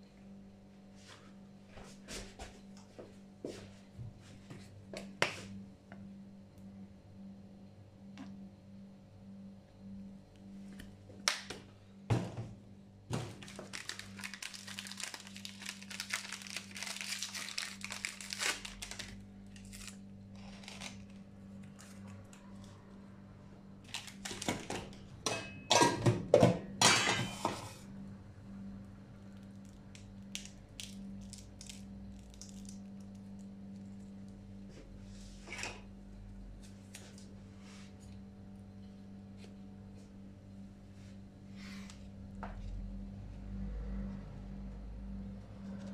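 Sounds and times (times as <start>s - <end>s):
steady low hum: 0.0s - 45.9s
knocks and crunches: 13.1s - 19.1s
plastic wrapper crinkling: 13.2s - 22.2s, 23.8s - 25.0s.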